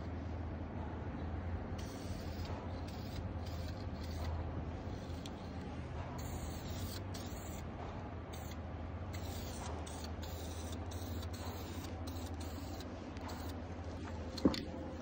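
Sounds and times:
fan humming: 0:00.0 - 0:00.8, 0:01.4 - 0:15.0
aerosol can hissing: 0:06.2 - 0:07.6, 0:09.2 - 0:13.6.

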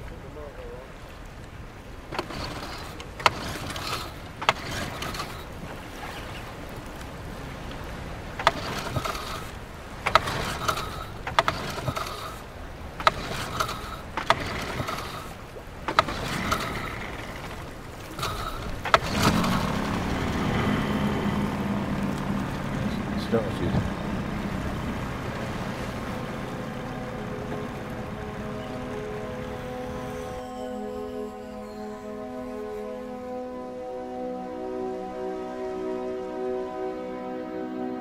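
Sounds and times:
water wash: 0:00.0 - 0:38.0
boat knocking: 0:01.0 - 0:33.4
steady hum: 0:08.7 - 0:37.1.

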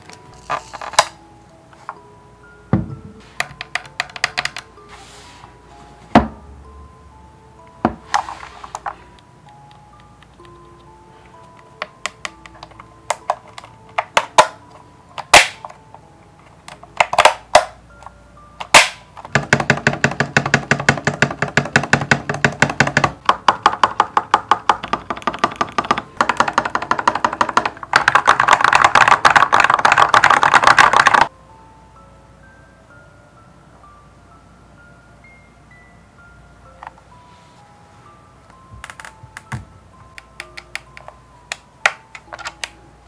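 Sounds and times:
faint background music: 0:00.0 - 0:43.0
keyboard key presses: 0:18.6 - 0:31.3
fast typing on keyboard: 0:19.3 - 0:31.3.

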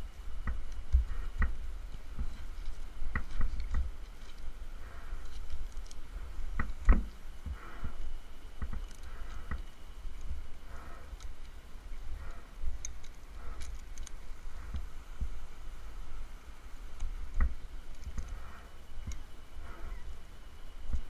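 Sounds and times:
rope rubbing against bark: 0:00.0 - 0:20.1
steady low rumble: 0:00.0 - 0:21.0
scattered clicks: 0:08.6 - 0:15.3, 0:16.9 - 0:20.1.

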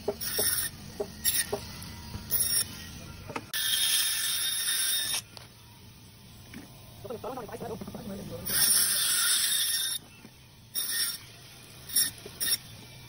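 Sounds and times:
band saw cutting frozen fish: 0:00.0 - 0:05.4, 0:08.4 - 0:13.0.

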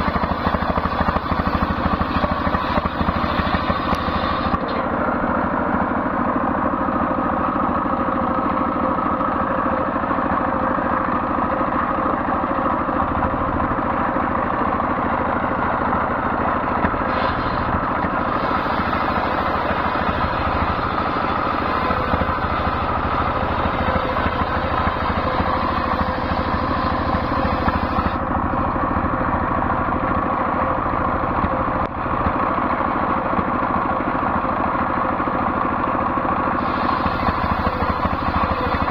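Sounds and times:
circular saw cutting wood: 0:00.0 - 0:06.0, 0:16.7 - 0:28.6, 0:36.5 - 0:38.9
diesel engine running: 0:00.0 - 0:38.9.

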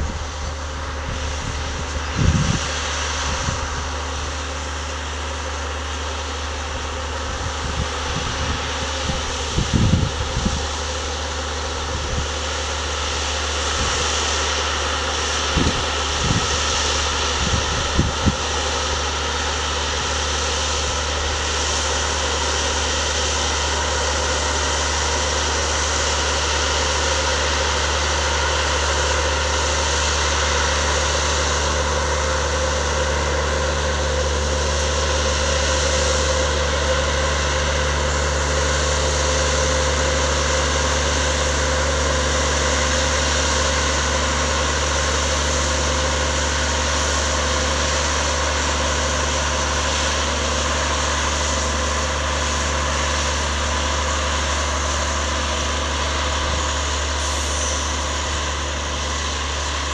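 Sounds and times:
diesel engine running: 0:00.0 - 0:59.9
wind thumps on microphone: 0:01.4 - 0:02.6.

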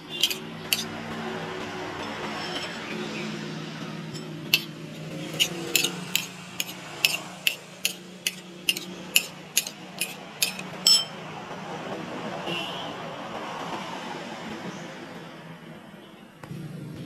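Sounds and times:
spoon clinking against bowl: 0:00.1 - 0:00.9, 0:04.1 - 0:04.7, 0:05.3 - 0:11.2.

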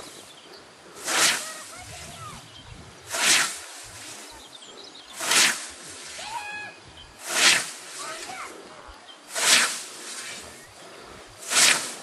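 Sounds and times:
scythe swishing through grass: 0:01.0 - 0:02.1, 0:03.1 - 0:04.4, 0:05.1 - 0:06.4, 0:07.2 - 0:08.5, 0:09.3 - 0:10.7, 0:11.4 - 0:12.0.

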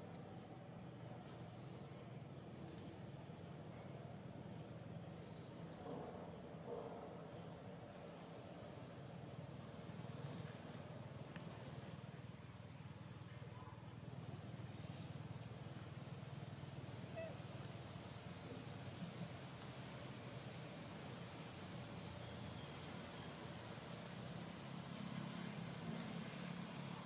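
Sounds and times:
insect chirp: 0:00.0 - 0:27.0
insects buzzing: 0:00.0 - 0:27.0.

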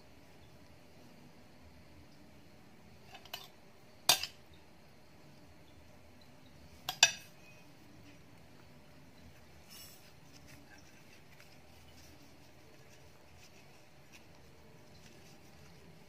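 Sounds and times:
metal spoon clinking on dish: 0:04.1 - 0:04.4, 0:06.9 - 0:07.3.

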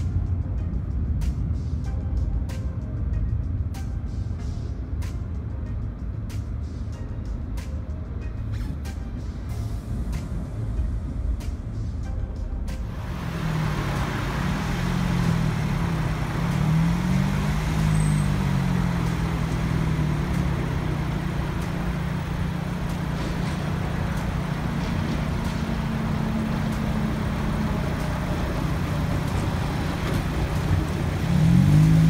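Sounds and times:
cars driving by: 0:00.0 - 0:32.0
tram rolling past: 0:09.1 - 0:32.0
low hum: 0:12.8 - 0:32.0.

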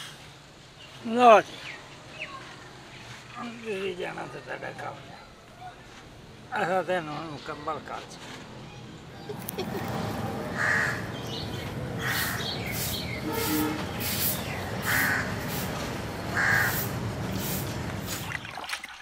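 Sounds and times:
steady background noise: 0:00.0 - 0:18.7
crows cawing: 0:10.5 - 0:11.2, 0:12.0 - 0:12.5, 0:14.8 - 0:15.5, 0:16.3 - 0:16.9.

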